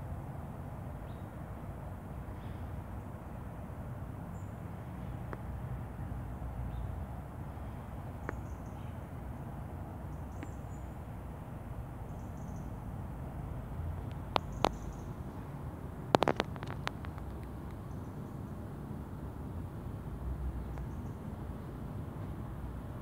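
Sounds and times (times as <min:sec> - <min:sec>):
faint bird chirps: 0:07.7 - 0:09.0, 0:10.1 - 0:11.0, 0:12.1 - 0:12.8, 0:14.4 - 0:15.2
small sharp clicks: 0:14.0 - 0:15.2, 0:16.1 - 0:18.0.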